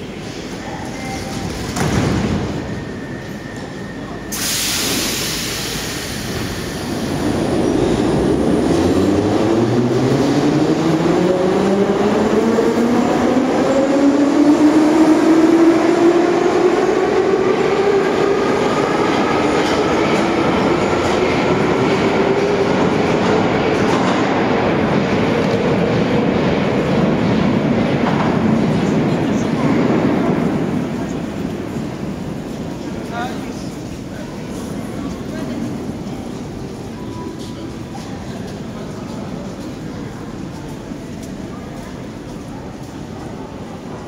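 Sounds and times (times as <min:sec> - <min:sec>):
train thump: 0:01.5 - 0:02.7
air hiss: 0:04.3 - 0:07.0.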